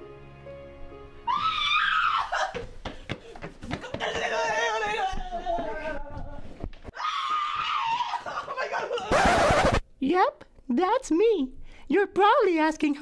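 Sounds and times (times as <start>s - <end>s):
soft background music: 0.0s - 2.0s.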